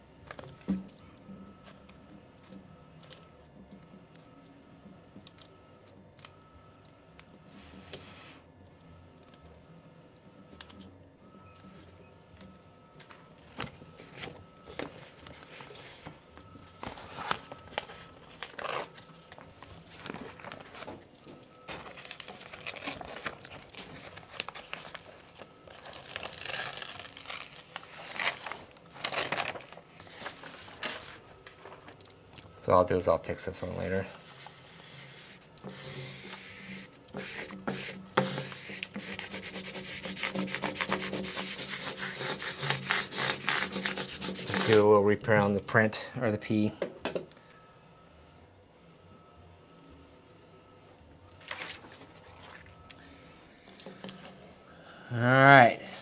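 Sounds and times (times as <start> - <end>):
paper crinkling and rustling: 13.9 - 32.0, 40.3 - 44.9, 51.3 - 52.8.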